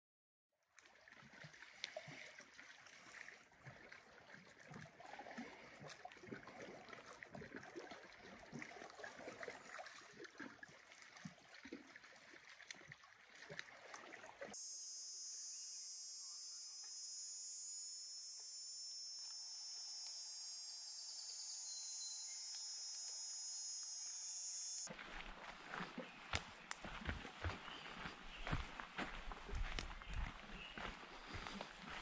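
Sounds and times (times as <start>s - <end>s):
lake waves lapping at shore: 0.8s - 14.6s, 24.8s - 32.0s
high insect trill: 14.6s - 24.9s.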